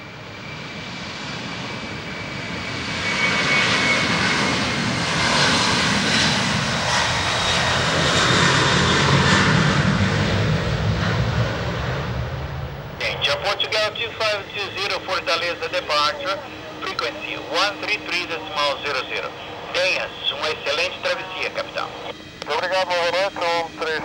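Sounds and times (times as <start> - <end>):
jet engines roaring at takeoff: 0.0 - 24.0.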